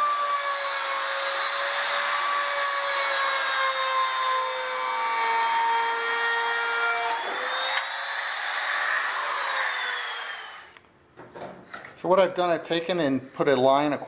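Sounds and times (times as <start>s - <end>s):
router cutting metal sheet: 0.0s - 10.8s
trim router motor whine: 0.0s - 10.8s.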